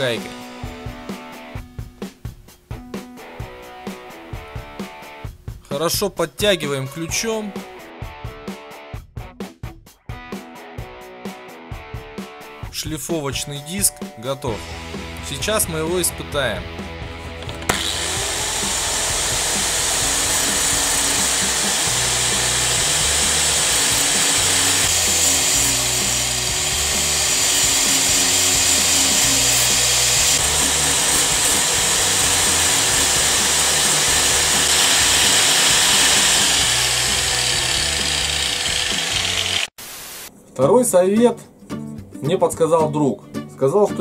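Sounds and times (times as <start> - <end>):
angle grinder grinding steel: 17.3 - 39.7.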